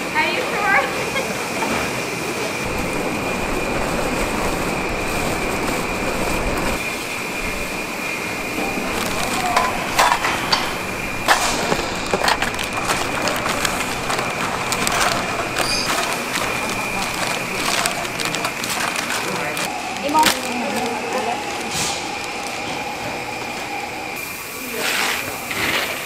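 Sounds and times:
electric fans and machinery running: 0.0s - 26.0s
steady high whine: 2.4s - 24.8s
metal scoops clattering on steel tray: 8.6s - 20.9s.

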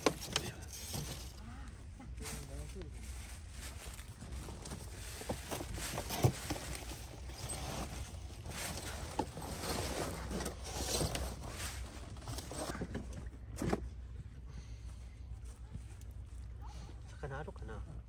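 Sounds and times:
rustling of camping gear: 0.0s - 17.3s
steady low rumble: 0.0s - 18.0s.

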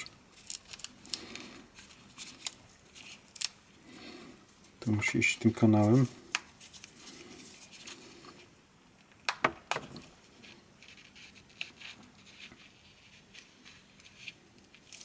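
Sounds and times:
hands rubbing plastic headband: 5.6s - 8.4s.

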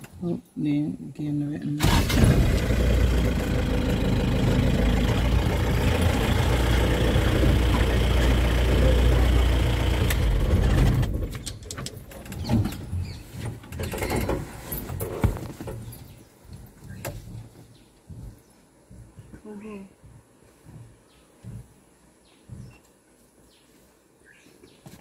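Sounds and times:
vehicle engine running: 1.8s - 11.4s.

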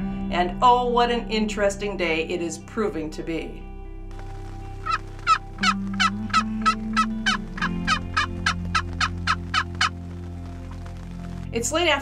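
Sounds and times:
turkey yelping: 4.8s - 10.0s.

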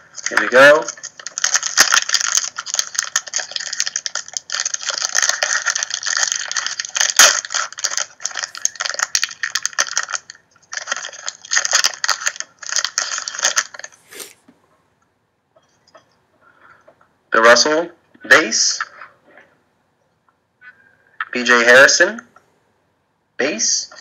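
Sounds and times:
foil wrapper crinkling and tearing: 0.0s - 14.0s.

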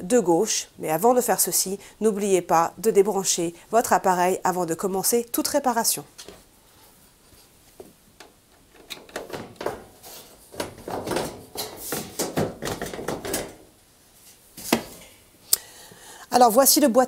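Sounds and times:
panel scraping and rubbing: 8.7s - 13.6s.

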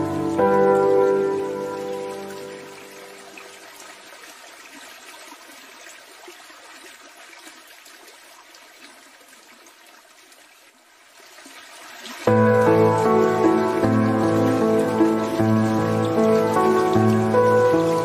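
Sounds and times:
faint water sound: 0.0s - 18.0s.

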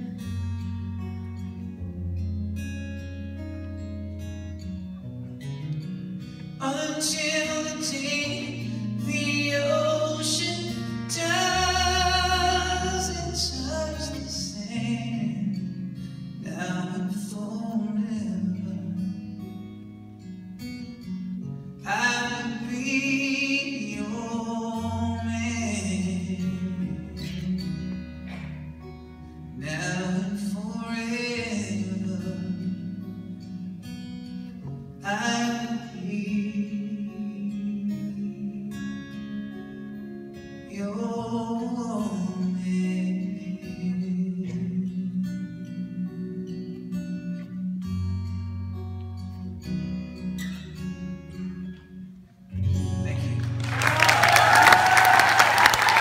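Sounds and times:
acoustic guitar: 0.0s - 56.0s
man singing: 6.6s - 19.3s, 21.8s - 28.4s, 29.6s - 34.0s, 35.0s - 39.2s, 40.7s - 47.9s, 52.6s - 54.4s.

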